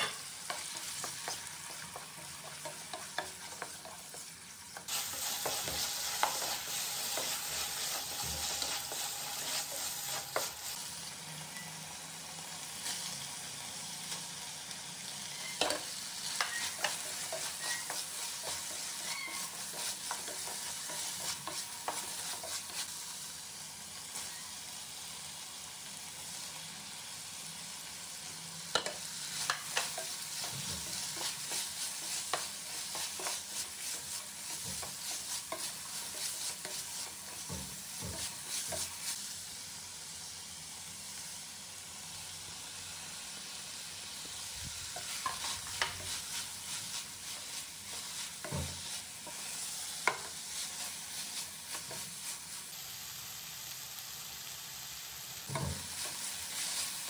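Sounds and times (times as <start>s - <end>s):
wooden spatula scraping a pan: 0.0s - 10.8s, 15.4s - 23.0s, 28.8s - 39.2s, 44.8s - 52.5s, 55.5s - 57.0s
stir-fry sizzling: 0.0s - 57.0s.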